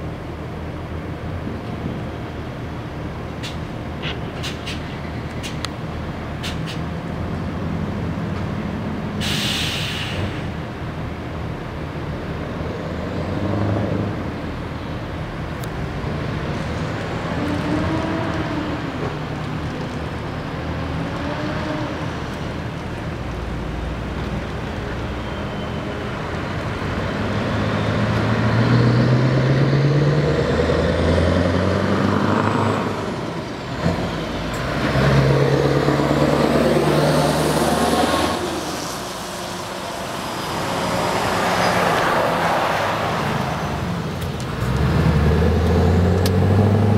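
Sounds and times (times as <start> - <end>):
diesel truck accelerating: 0.0 - 46.9
air hiss: 9.2 - 10.4.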